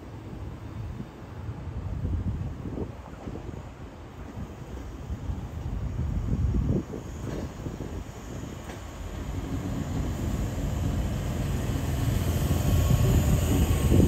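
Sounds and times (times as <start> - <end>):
electric train approaching: 4.7 - 14.0.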